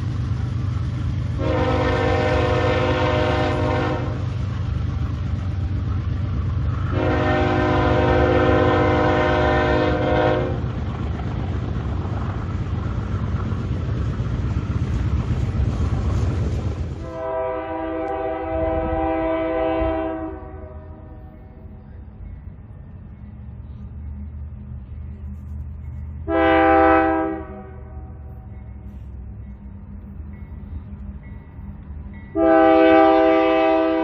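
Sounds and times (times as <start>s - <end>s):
freight cars rumbling on track: 0.0s - 26.4s
locomotive air horn: 1.4s - 4.3s, 6.9s - 10.6s, 17.0s - 21.2s, 26.2s - 28.2s, 32.4s - 34.0s.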